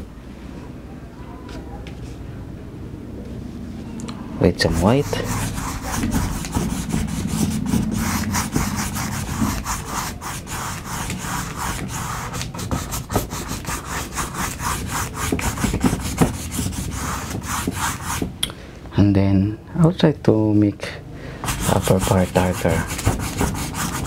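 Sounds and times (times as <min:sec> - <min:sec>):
paintbrush scrubbing on canvas: 0:04.6 - 0:18.3, 0:21.4 - 0:24.0.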